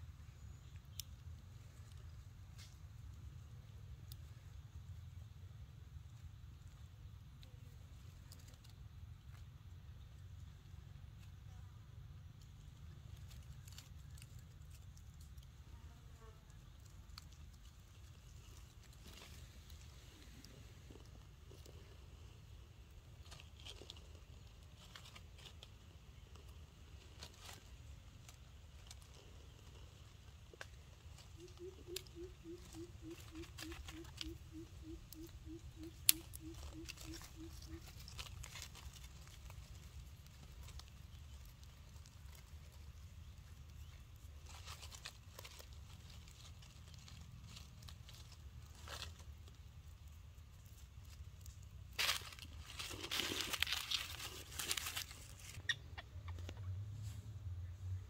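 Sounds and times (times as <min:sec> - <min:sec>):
low steady rumble: 0:00.0 - 0:33.1
dry leaves crackling: 0:06.0 - 0:57.2.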